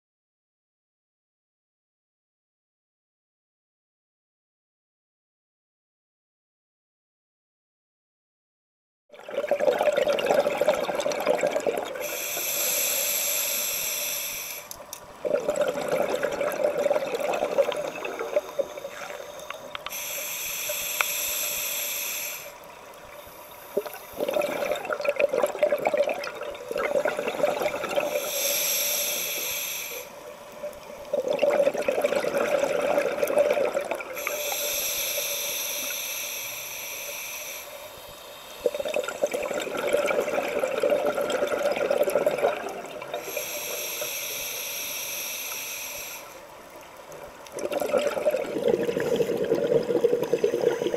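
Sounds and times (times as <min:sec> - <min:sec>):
exhaled bubbles gurgling: 0:09.1 - 0:13.5, 0:15.2 - 0:19.8, 0:23.0 - 0:28.6, 0:30.7 - 0:35.2, 0:38.6 - 0:45.0, 0:46.7 - 0:50.9.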